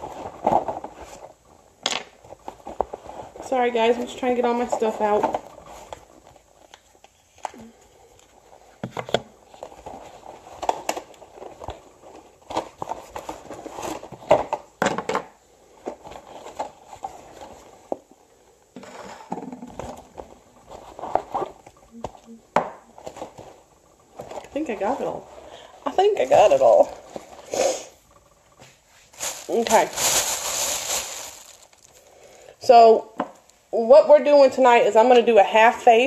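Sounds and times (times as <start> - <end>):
cardboard packaging rustling: 8.0 - 14.8, 15.8 - 18.0, 19.5 - 27.5, 28.1 - 32.4.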